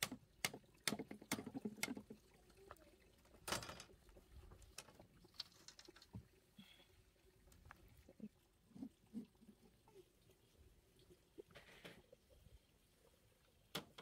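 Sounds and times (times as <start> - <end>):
bamboo strips clicking and knocking: 0.0 - 2.2.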